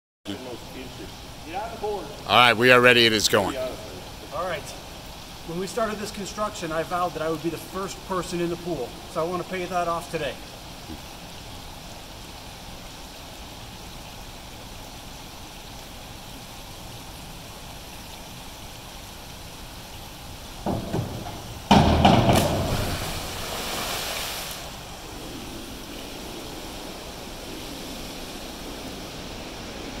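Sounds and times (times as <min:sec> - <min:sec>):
pool hall hum: 0:00.4 - 0:11.1, 0:18.9 - 0:30.0
diving board thumps: 0:20.6 - 0:23.8
cannonball splash into pool: 0:20.6 - 0:24.7.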